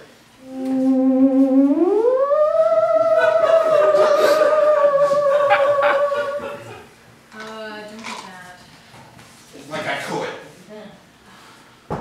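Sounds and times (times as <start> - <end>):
eerie wavering tone: 0.4 - 6.9.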